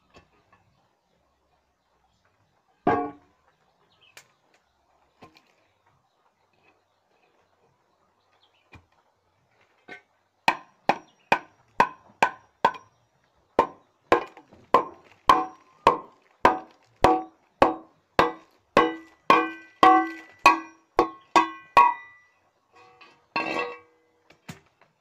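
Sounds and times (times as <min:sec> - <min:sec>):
knocking on metal pipe: 0:13.6 - 0:22.2.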